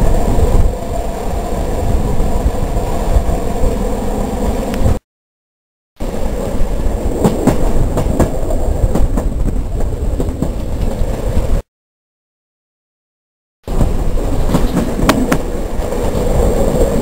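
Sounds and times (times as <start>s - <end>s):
train rumbling on rails: 0.0s - 5.0s, 6.0s - 11.7s, 13.6s - 17.0s
wheels clicking over rail joints: 6.1s - 11.6s, 13.7s - 17.0s.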